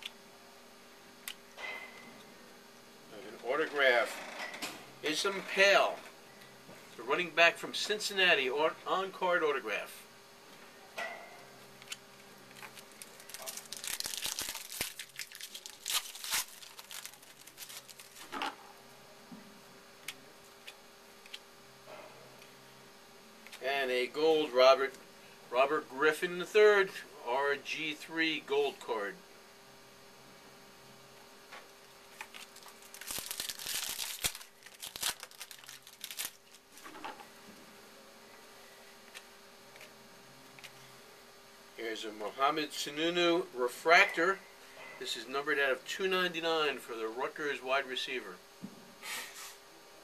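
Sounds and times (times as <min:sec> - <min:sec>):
wrapper tearing and crinkling: 0:12.5 - 0:18.4, 0:32.2 - 0:37.0.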